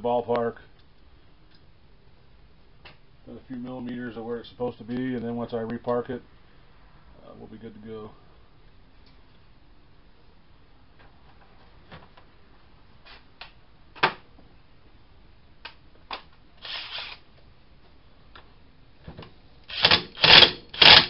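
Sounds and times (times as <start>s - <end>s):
impact wrench hammering: 19.8s - 21.0s.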